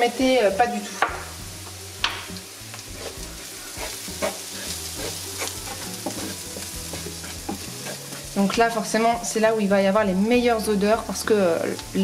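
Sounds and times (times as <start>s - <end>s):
onion sizzling in oil: 0.0s - 12.0s
spatula scraping a pan: 2.8s - 8.6s.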